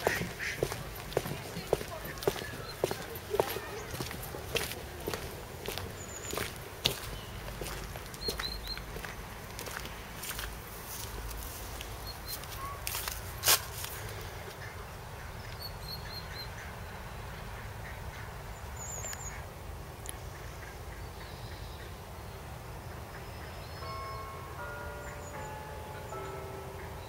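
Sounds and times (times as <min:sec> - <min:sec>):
ducks quacking: 0:00.0 - 0:08.4.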